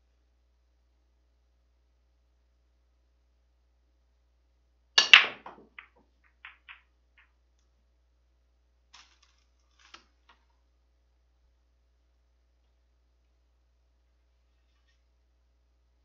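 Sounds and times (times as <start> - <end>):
cue tip striking cue ball: 5.0 - 6.8
cue ball cracking into racked balls: 5.0 - 7.3
pool balls clicking: 5.0 - 7.4.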